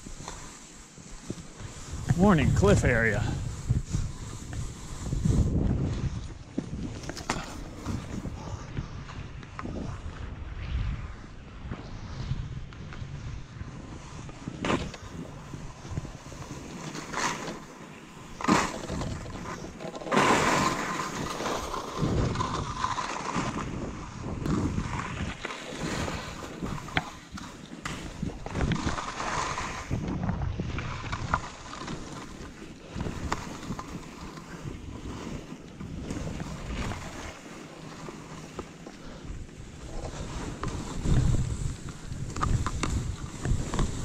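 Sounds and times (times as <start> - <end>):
skis hissing through snow: 0.0 - 9.0, 10.9 - 30.1, 30.8 - 44.0
wind on microphone: 1.2 - 17.5, 18.4 - 44.0.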